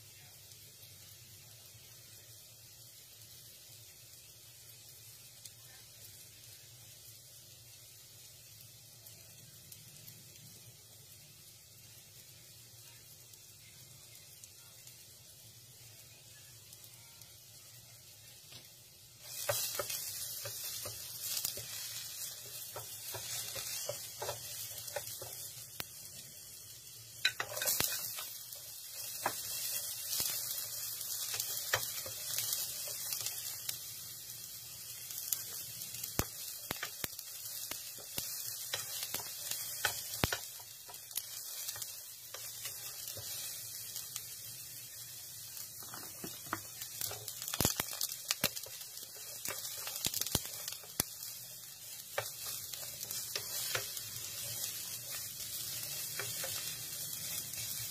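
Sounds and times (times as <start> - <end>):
food sizzling in hot oil: 0.0 - 57.9
spatula scraping a pan: 27.2 - 28.3.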